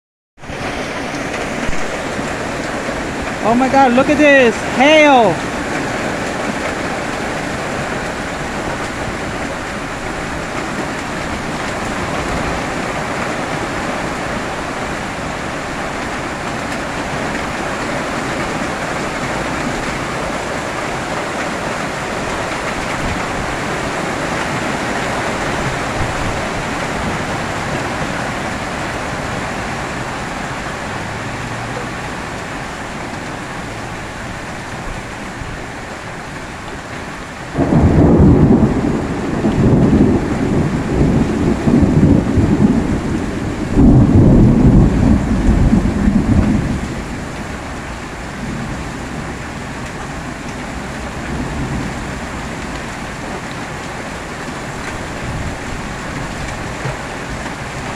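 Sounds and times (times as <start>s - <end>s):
hail striking ground and cars: 0.6s - 57.9s.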